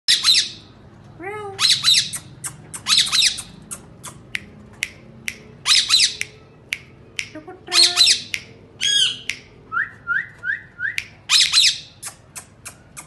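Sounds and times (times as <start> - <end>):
parakeets squawking: 0.1 - 0.7, 1.6 - 4.5, 5.6 - 6.2, 7.7 - 9.3, 11.3 - 13.0.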